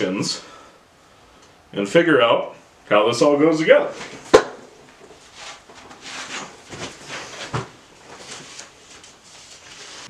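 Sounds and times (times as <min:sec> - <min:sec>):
sharp knock: 0:04.3 - 0:04.6
paper pages rustling: 0:05.4 - 0:10.0.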